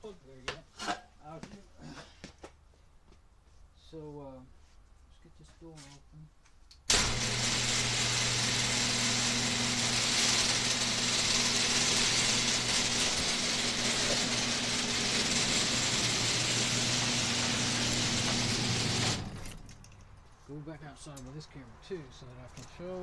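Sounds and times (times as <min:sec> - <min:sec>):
garage door opener motor hum: 0:06.9 - 0:19.8
mechanical whir: 0:06.9 - 0:19.8.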